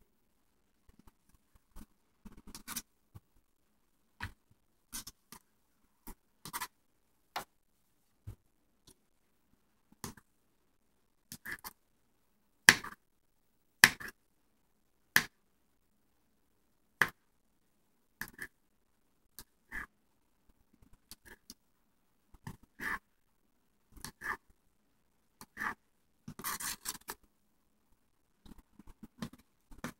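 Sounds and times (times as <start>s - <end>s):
knife chopping on plastic board: 12.7s - 13.0s, 13.8s - 14.1s.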